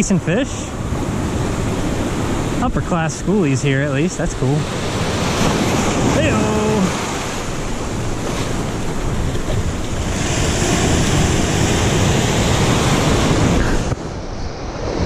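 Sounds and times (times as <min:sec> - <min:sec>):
surf breaking over rocks: 0:00.8 - 0:15.0
wind buffeting microphone: 0:04.1 - 0:15.0.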